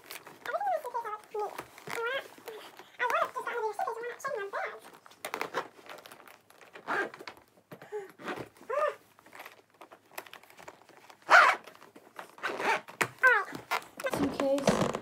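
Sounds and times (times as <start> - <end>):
zipper scraping around suitcase: 5.3 - 7.3, 11.2 - 15.0.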